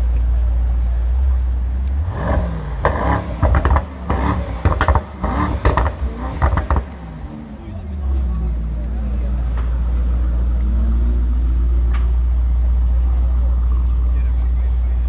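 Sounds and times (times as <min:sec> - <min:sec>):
car engine idling and revving: 0:00.0 - 0:15.0
exhaust crackles: 0:00.0 - 0:15.0.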